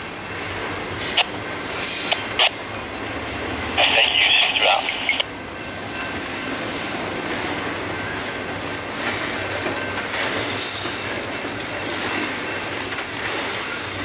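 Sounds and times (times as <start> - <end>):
train wheels clattering on rails: 5.6 - 14.0.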